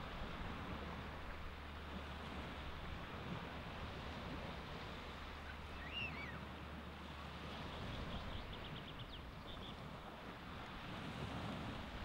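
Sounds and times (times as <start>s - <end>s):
surf washing on beach: 0.0s - 12.0s
bird call: 5.7s - 6.4s.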